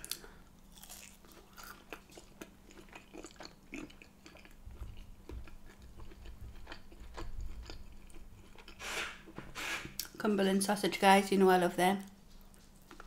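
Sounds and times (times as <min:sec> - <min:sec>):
person chewing: 0:00.0 - 0:09.1.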